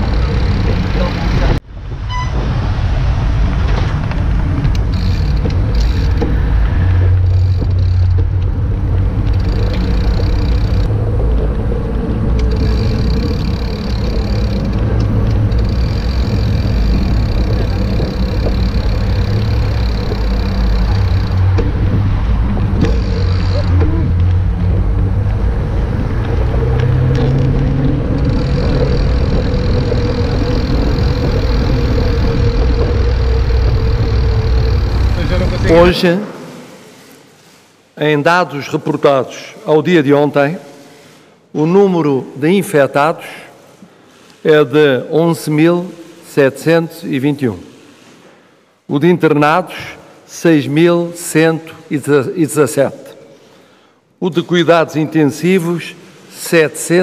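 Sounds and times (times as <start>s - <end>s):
passing street traffic: 0.0s - 38.0s
bicycle tyre and road noise: 0.0s - 39.6s.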